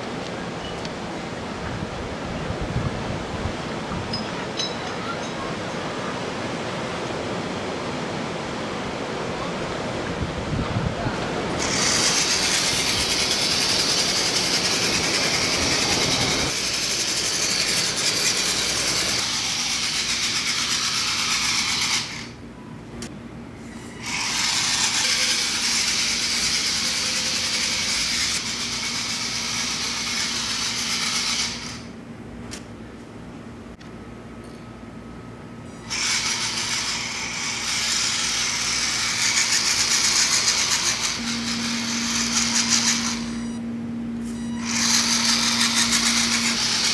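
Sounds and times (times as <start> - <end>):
wind: 0.0 - 46.9
electric motor whirring: 11.6 - 22.4, 23.9 - 31.9, 35.8 - 43.6, 44.2 - 46.9.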